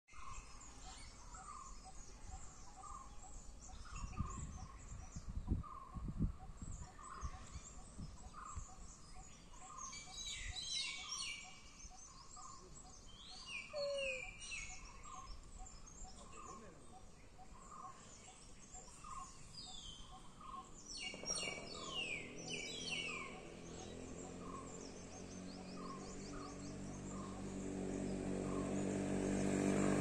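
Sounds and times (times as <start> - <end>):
forest birds chirping: 0.1 - 30.0.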